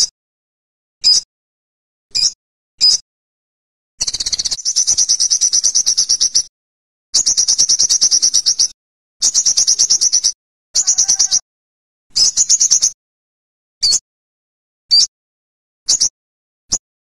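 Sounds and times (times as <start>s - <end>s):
bird singing rapid trills: 2.1s - 3.0s, 4.0s - 6.5s, 7.2s - 11.4s, 12.1s - 13.0s, 13.8s - 14.0s, 15.9s - 16.1s.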